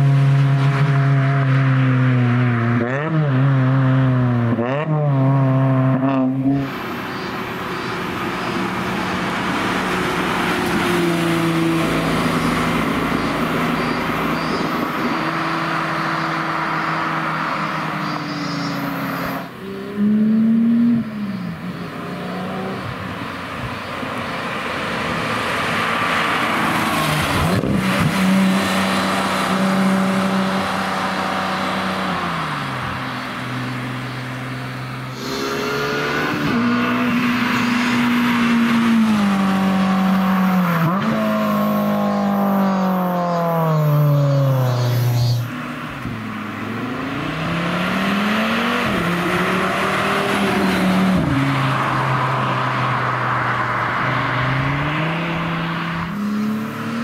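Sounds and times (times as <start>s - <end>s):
roadster engine revving: 0.0s - 57.0s
sports cars accelerating past: 0.0s - 57.0s
flat-six engines revving: 35.1s - 45.5s.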